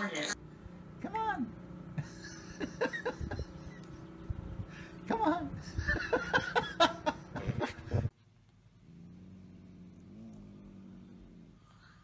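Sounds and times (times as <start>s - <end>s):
low animal growl: 8.8s - 12.0s.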